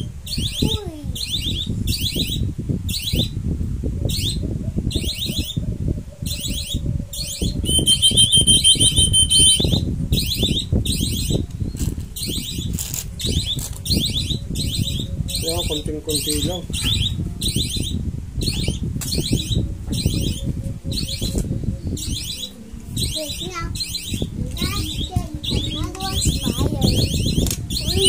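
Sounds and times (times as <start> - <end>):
shrill high chirps: 6.2 - 28.0
high whistled note: 7.4 - 9.8
rustling and handling noise: 11.7 - 14.0.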